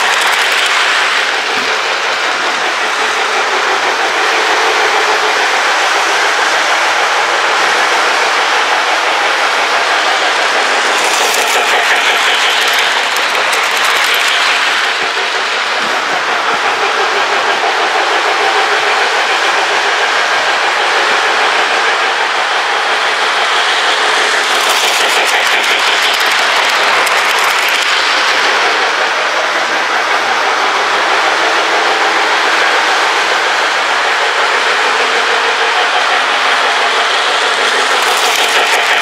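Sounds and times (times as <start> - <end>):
wheels clicking over track joints: 0.0 - 5.8, 9.4 - 18.4, 22.9 - 30.0, 33.2 - 39.0
toy train motor whir: 0.0 - 6.8, 9.4 - 16.3, 22.9 - 29.8, 32.7 - 39.0.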